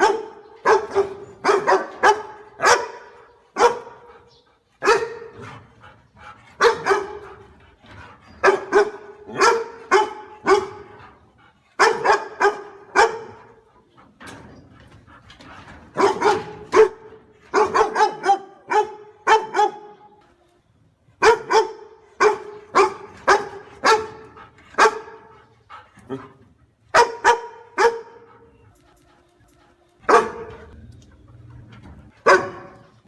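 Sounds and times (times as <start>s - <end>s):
dog barking: 0.0s - 4.1s, 4.8s - 5.4s, 6.6s - 7.3s, 8.4s - 11.0s, 11.8s - 13.6s, 16.0s - 20.0s, 21.2s - 25.3s, 26.9s - 28.3s, 30.1s - 30.8s, 32.2s - 32.9s.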